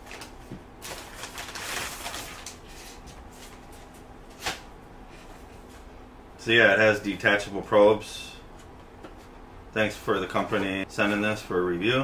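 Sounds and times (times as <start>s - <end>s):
paper mailer rustling and crinkling: 0.0s - 4.7s.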